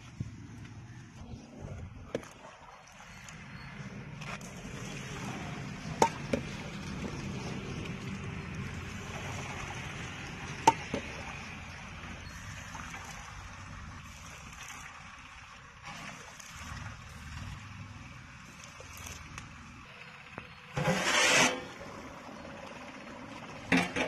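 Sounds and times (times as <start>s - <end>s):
water splashing into strainer: 4.2s - 13.5s.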